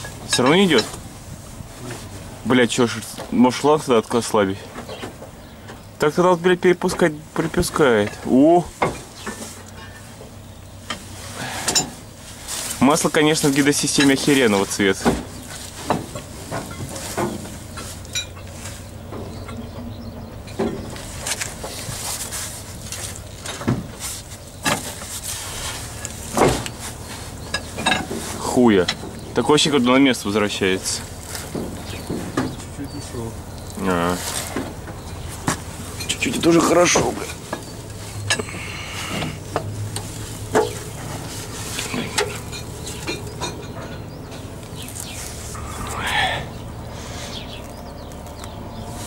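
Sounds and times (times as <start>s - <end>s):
tools knocking and scraping metal: 15.0s - 21.7s, 27.4s - 29.4s, 39.1s - 44.5s
steady low rumble: 25.3s - 49.0s.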